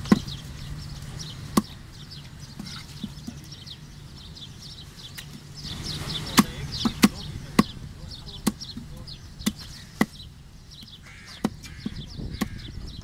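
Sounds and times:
cleaver chopping on wooden block: 11.3 - 12.7.

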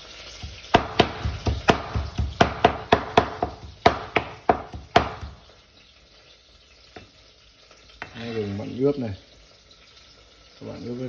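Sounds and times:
knife chopping on plastic board: 0.4 - 5.4.

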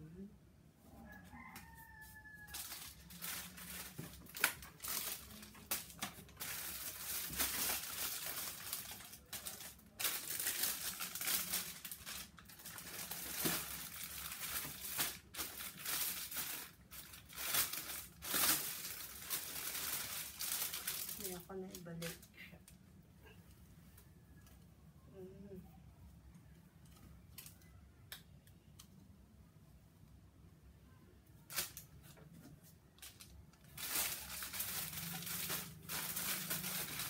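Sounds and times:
plastic wrapping crinkling: 1.6 - 22.8, 31.5 - 37.0.

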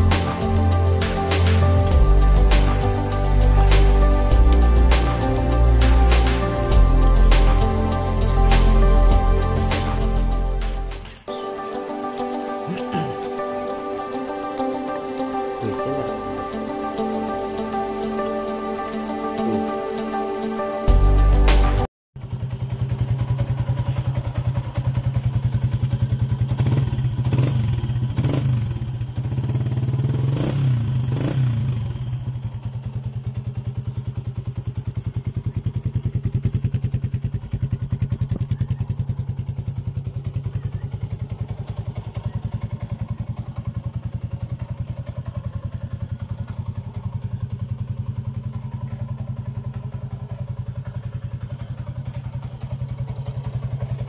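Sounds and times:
motorcycle engine idling: 0.0 - 15.5, 22.2 - 54.0
motorcycle engine throttle blips: 22.2 - 54.0.

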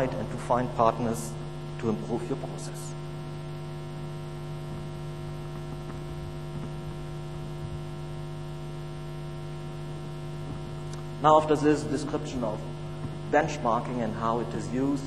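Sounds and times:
electrical mains hum: 0.0 - 15.0.

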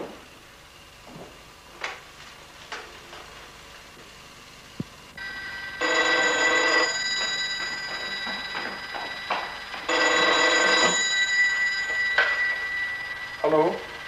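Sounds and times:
telephone ringing: 5.2 - 14.0.

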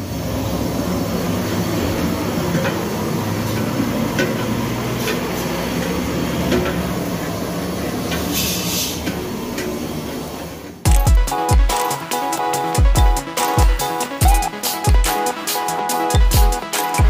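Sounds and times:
gas burner roaring: 0.0 - 10.9
brief hiss: 8.3 - 9.0.

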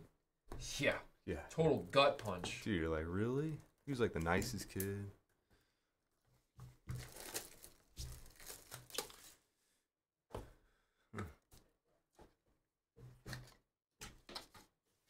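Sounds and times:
plastic shrink wrap tearing: 6.9 - 9.4.

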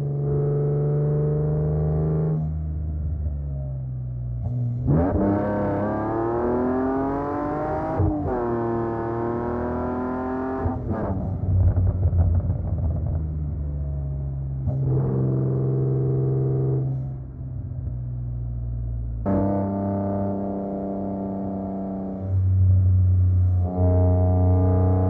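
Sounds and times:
car engine accelerating hard: 4.4 - 13.2.

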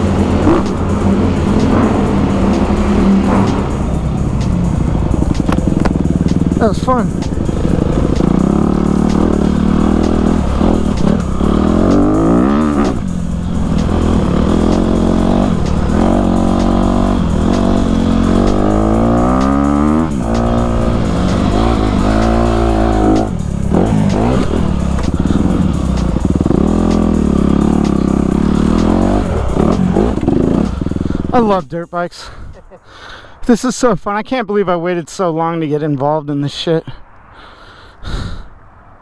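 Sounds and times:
dirt bike engine revving: 0.0 - 31.6.

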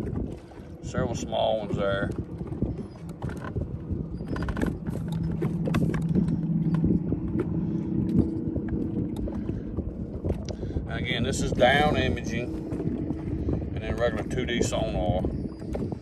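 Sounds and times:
boat motor humming: 0.0 - 16.0
water around boat: 0.0 - 16.0
wind: 0.0 - 16.0.

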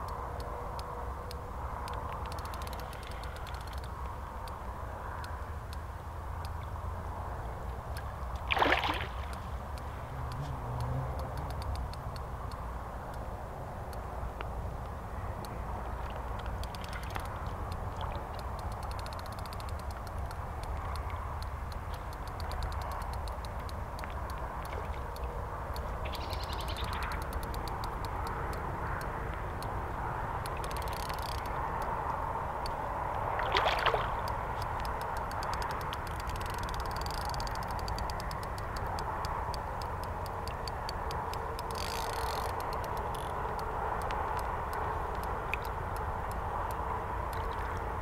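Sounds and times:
fast fine ticking: 1.8 - 4.6, 9.3 - 12.6, 16.2 - 29.8, 30.4 - 32.0, 34.2 - 47.6
fish splashing in water: 8.4 - 9.4, 33.2 - 34.5.

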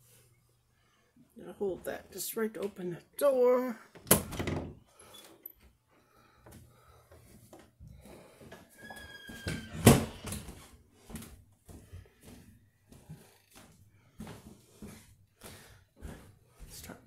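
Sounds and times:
door banging shut: 4.0 - 4.8, 9.5 - 10.3
door squeak: 8.8 - 10.5.

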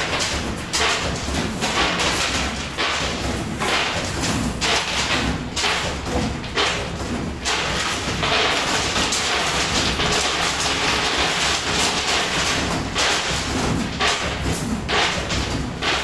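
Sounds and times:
machine mechanical rattle: 0.0 - 16.0.

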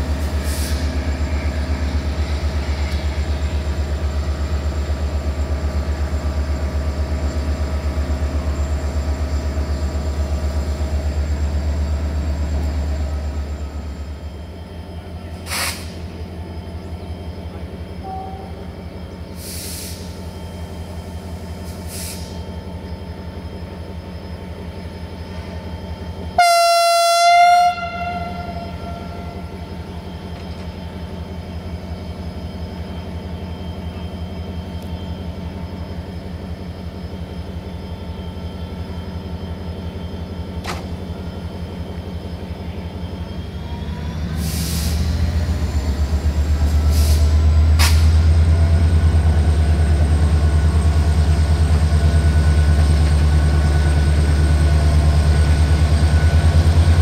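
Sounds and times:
diesel locomotive engine: 0.0 - 57.0
short hisses: 15.4 - 16.1, 19.4 - 20.2, 21.7 - 22.4
locomotive horn: 26.4 - 29.6.

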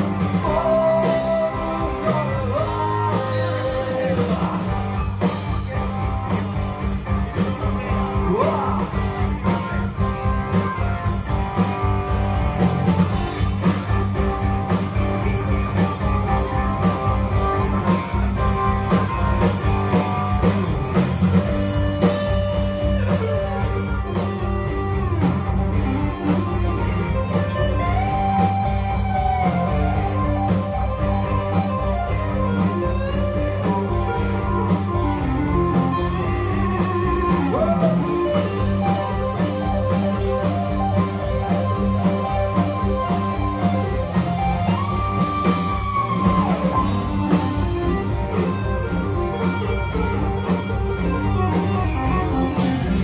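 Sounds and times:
drum kit: 0.0 - 53.0
electric guitars: 0.0 - 53.0
male singer: 0.4 - 6.2, 7.4 - 9.3.

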